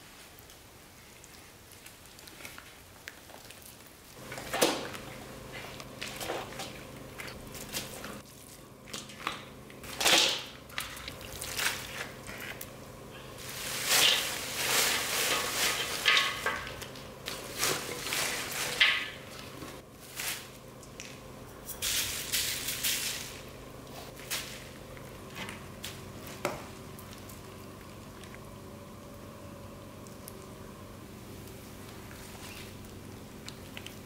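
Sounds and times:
wet rustling and squishing: 0:00.4 - 0:21.2.

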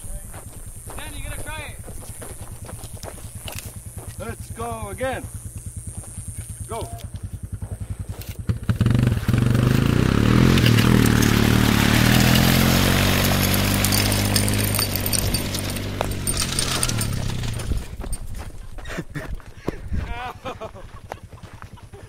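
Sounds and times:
quad engine revving: 0:03.6 - 0:18.0.

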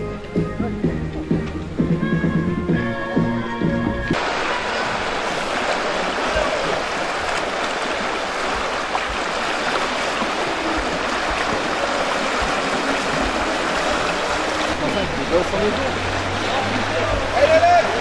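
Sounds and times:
turbulent river water rushing: 0:04.1 - 0:18.0.

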